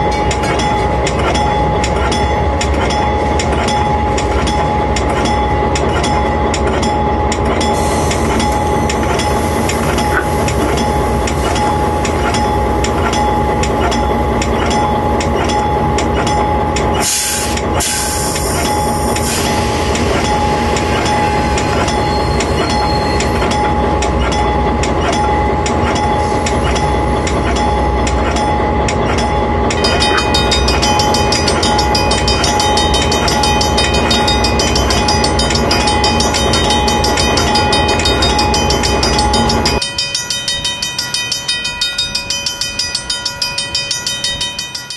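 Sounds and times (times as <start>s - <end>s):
constant whine: 0.0s - 44.9s
train engine and rail noise: 0.0s - 44.9s
higher ringing sound: 18.7s - 44.9s.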